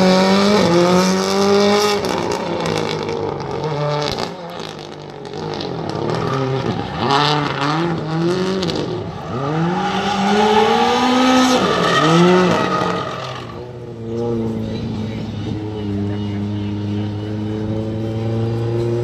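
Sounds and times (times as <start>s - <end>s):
car engine revving: 0.0s - 19.0s.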